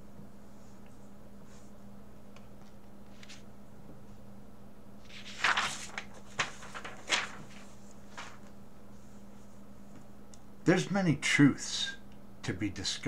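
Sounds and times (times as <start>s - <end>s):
faint steady hum: 0.0s - 13.0s
paper rustling and crackling: 5.0s - 8.6s.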